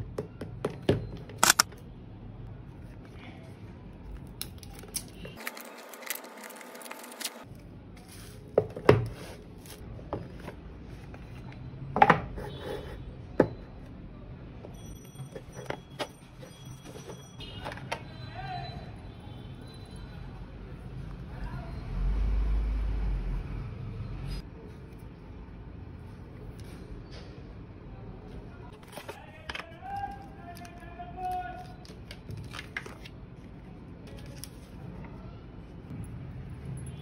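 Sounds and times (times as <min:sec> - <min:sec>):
plastic crinkling: 0:04.4 - 0:08.5.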